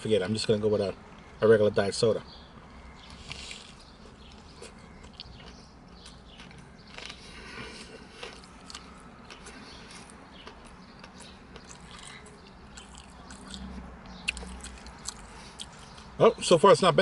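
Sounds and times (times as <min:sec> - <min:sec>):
chewing crunchy food: 0:03.0 - 0:16.1.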